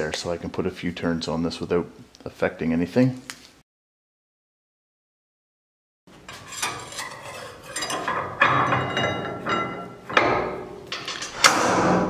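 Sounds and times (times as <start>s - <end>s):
metallic clanks ringing: 6.3s - 11.6s.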